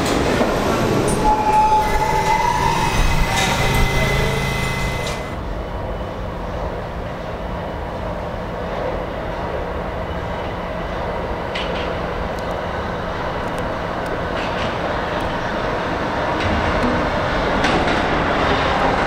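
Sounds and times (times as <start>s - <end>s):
subway train wheels rumbling: 0.0s - 19.0s.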